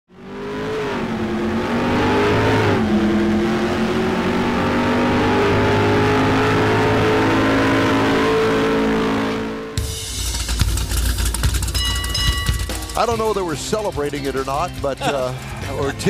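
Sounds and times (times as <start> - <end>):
car engine revving: 0.1 - 16.0.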